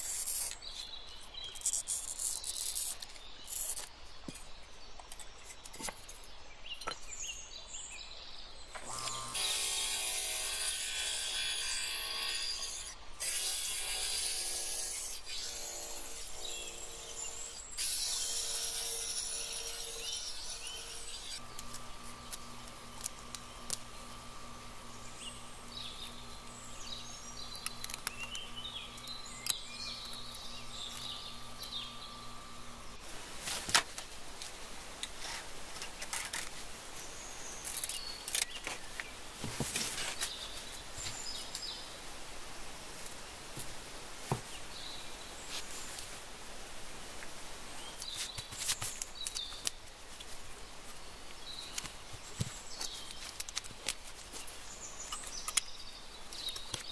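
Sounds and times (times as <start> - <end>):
glass grinder motor humming: 8.8 - 33.0.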